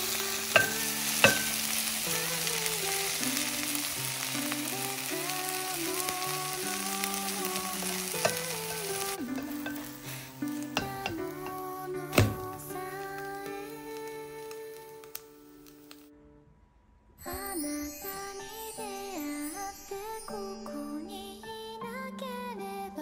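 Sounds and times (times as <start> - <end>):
pancake sizzling in oil: 0.0 - 16.0
background music: 0.0 - 16.5, 17.2 - 23.0.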